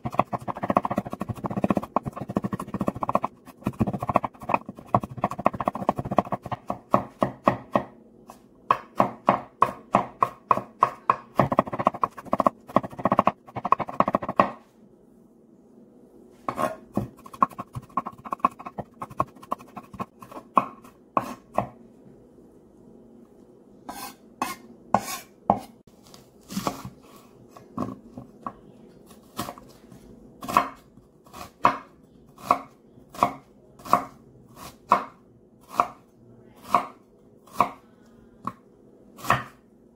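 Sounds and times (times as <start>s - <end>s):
knife chopping on wooden board: 0.0s - 7.9s, 8.7s - 14.6s, 23.9s - 25.7s, 39.2s - 39.6s
knife slicing onion: 0.0s - 14.6s, 16.5s - 21.8s, 23.9s - 25.8s, 26.5s - 27.2s, 30.4s - 36.0s, 36.6s - 37.8s, 39.2s - 39.6s.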